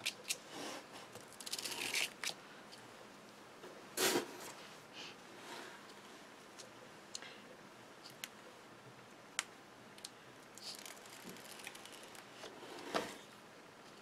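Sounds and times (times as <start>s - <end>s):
tape liner peeling ticks: 1.2s - 2.4s, 10.0s - 12.3s.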